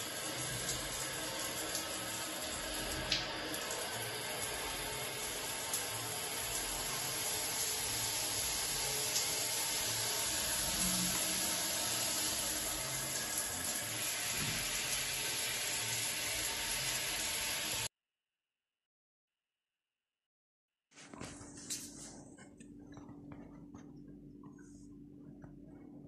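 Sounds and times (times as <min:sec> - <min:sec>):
shower water splashing on tiles: 0:00.0 - 0:17.9.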